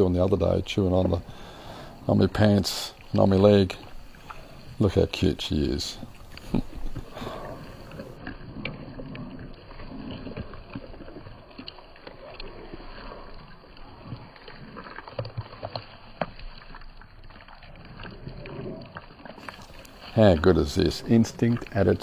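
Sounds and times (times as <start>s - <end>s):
puppy chewing meat and bone: 2.1s - 22.0s.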